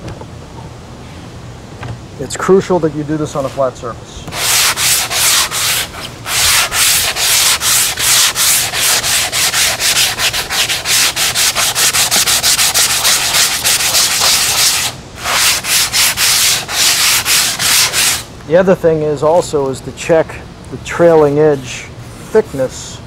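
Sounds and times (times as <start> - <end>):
sanding block rubbing gritty hiss: 4.3 - 18.3.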